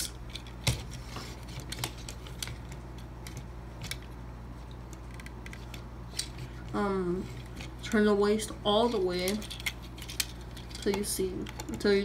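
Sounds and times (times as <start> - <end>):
plastic toy parts clicking: 9.2 - 11.8.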